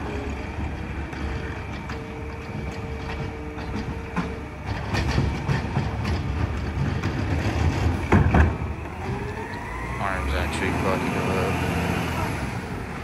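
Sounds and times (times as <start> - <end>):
metal clanks and rattles: 0.0 - 9.2
hydraulic arm whine: 0.0 - 13.0
truck engine low rumble: 0.0 - 13.0.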